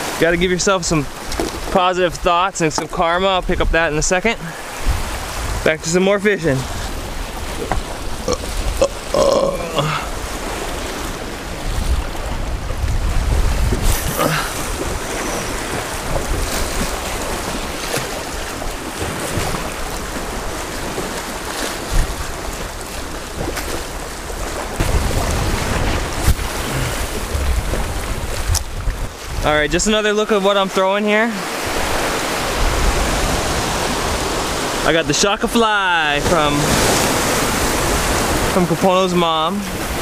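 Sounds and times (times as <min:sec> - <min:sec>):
wind buffeting microphone: 0:00.8 - 0:09.1, 0:09.9 - 0:29.9, 0:31.5 - 0:34.8
small waves washing over rocks: 0:09.9 - 0:29.6.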